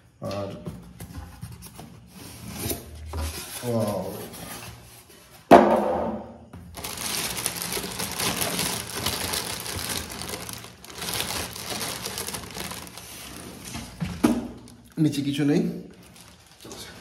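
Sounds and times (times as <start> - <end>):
sharp knock: 5.5 - 6.3
packaging crinkling and rustling: 6.7 - 17.0.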